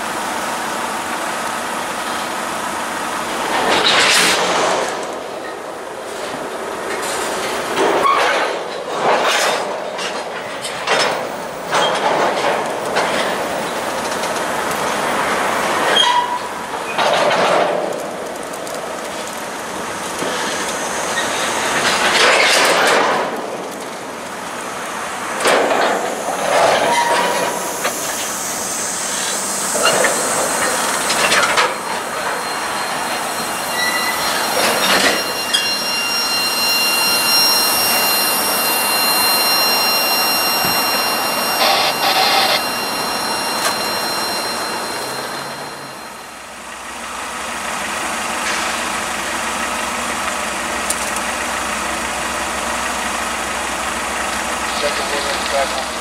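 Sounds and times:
train wheels clattering over rails: 0:03.2 - 0:46.6
wheel flange squeals: 0:13.2 - 0:17.2, 0:19.8 - 0:22.9, 0:25.9 - 0:47.0.

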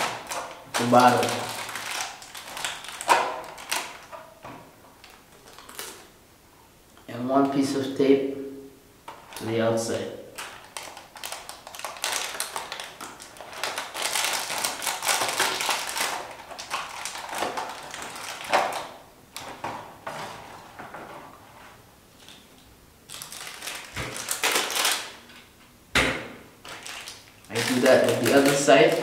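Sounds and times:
plastic wrapper and bottle crinkling: 0:00.0 - 0:06.1, 0:10.3 - 0:19.8, 0:22.2 - 0:25.5, 0:26.6 - 0:29.0.

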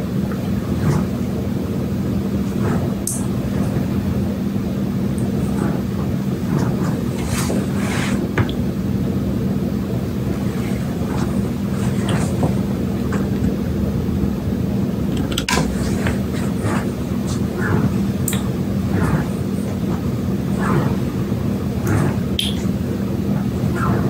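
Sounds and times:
low mechanical hum: 0:00.0 - 0:24.0.

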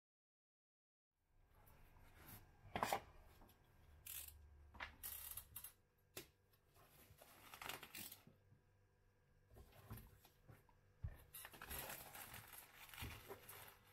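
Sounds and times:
plastic wrap crinkling: 0:11.4 - 0:13.9.

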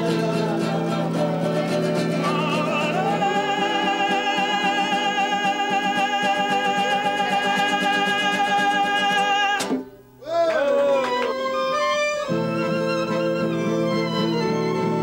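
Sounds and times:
strummed acoustic guitar: 0:00.0 - 0:10.0
man singing: 0:00.0 - 0:11.1
violin: 0:10.9 - 0:15.0.

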